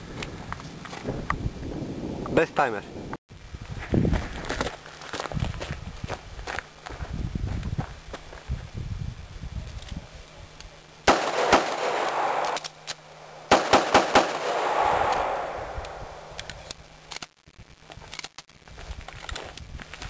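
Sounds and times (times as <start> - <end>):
pistol shots with echo: 11.1 - 12.6, 13.2 - 16.3.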